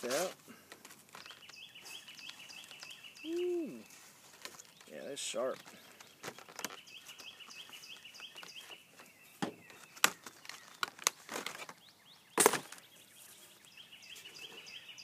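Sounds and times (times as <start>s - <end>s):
plastic blister pack crackling: 0.0s - 3.0s, 3.8s - 8.4s, 9.8s - 11.8s
faint high chirps: 1.2s - 4.1s.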